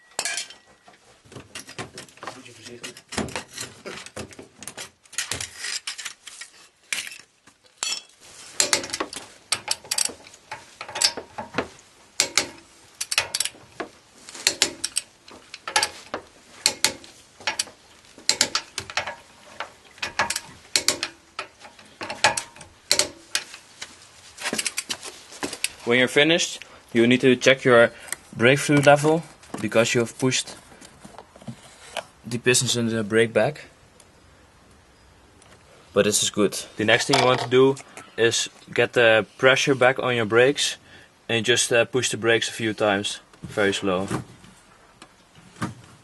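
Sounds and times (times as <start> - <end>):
metal clanks: 0.0 - 4.2, 7.8 - 23.6.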